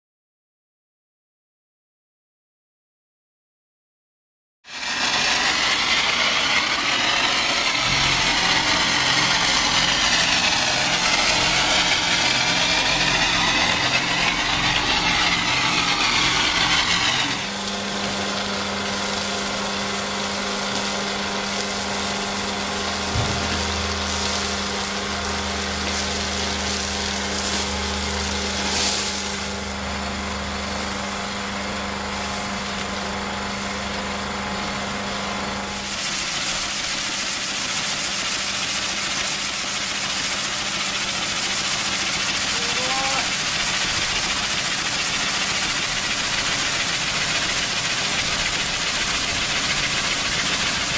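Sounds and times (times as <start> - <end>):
pressure washer spray hiss: 4.7 - 17.5, 20.7 - 29.6, 35.8 - 50.9
motor drone: 4.7 - 50.9.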